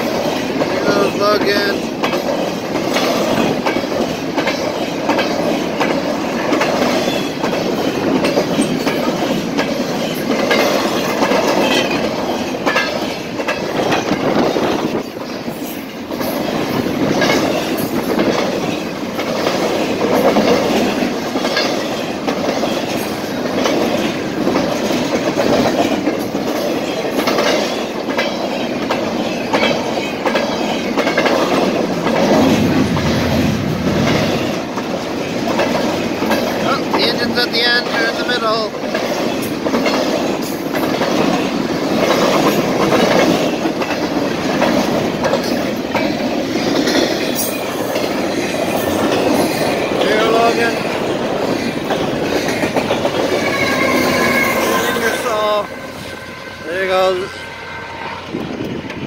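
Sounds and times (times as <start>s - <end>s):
train wheels clattering over rail joints: 0.0s - 57.4s
rumble and rattle of freight cars: 0.0s - 59.0s.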